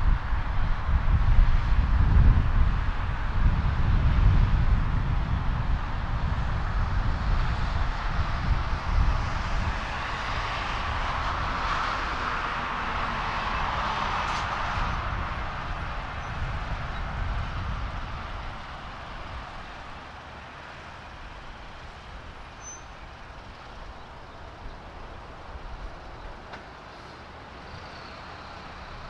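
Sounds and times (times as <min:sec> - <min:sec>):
jet engines rushing and rumbling: 0:00.0 - 0:29.0.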